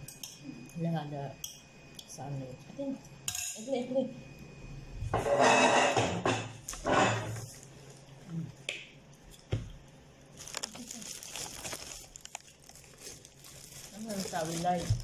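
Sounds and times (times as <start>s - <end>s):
bread tearing rustles: 10.3s - 15.0s.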